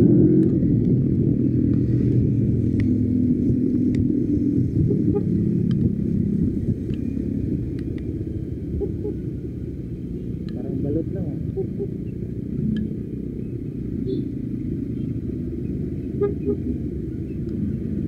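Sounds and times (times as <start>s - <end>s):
motorcycle engine rumbling: 0.0s - 18.0s
faint ticks: 12.7s - 12.9s.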